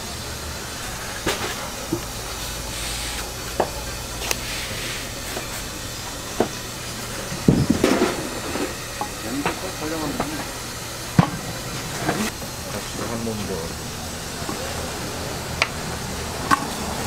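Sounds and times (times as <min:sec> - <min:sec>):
steam hissing: 0:00.0 - 0:17.0
plates knocking on counter: 0:07.4 - 0:08.2.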